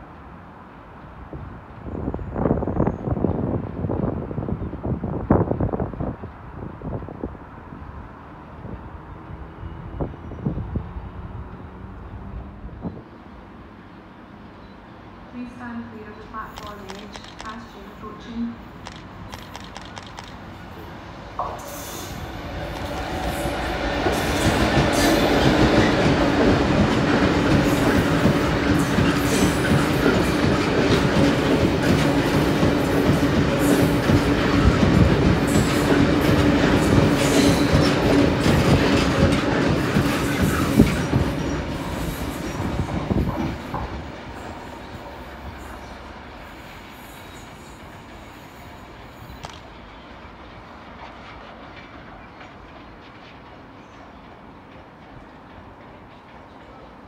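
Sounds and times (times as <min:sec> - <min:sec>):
diesel locomotive passing: 0:00.0 - 0:57.0
train wheels rumbling on track: 0:00.0 - 0:57.0
sharp metallic click: 0:18.8 - 0:20.4.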